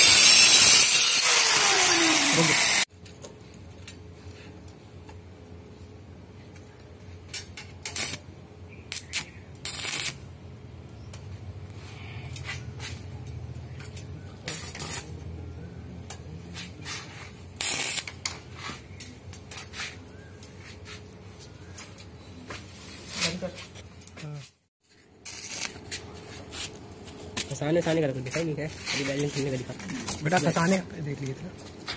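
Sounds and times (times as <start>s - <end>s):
welding arc hissing: 0.0s - 2.9s, 7.8s - 8.2s, 8.9s - 10.3s, 14.5s - 15.2s, 17.5s - 18.3s, 25.2s - 25.8s
welding machine hum: 0.0s - 2.9s, 7.8s - 8.2s, 8.9s - 10.4s, 14.5s - 15.2s, 17.5s - 18.3s, 25.2s - 26.1s.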